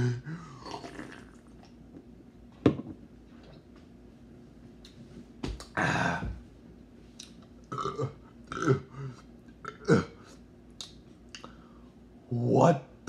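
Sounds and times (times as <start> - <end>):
man gagging and retching: 0.0 - 1.4, 7.7 - 10.3.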